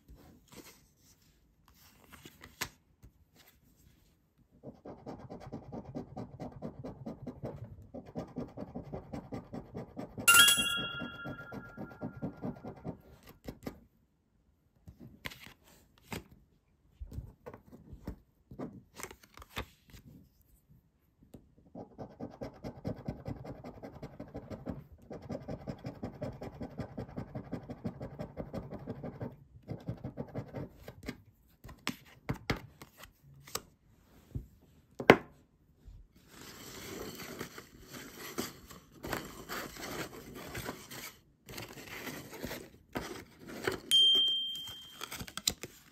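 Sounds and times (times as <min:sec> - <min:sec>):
soft steady rustle: 0:00.0 - 0:04.6.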